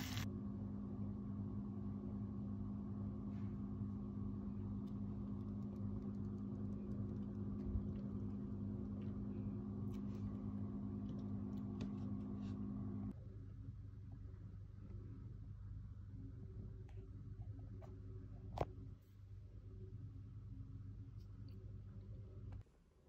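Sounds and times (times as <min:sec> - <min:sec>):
kitchen appliance humming: 0:00.0 - 0:00.3.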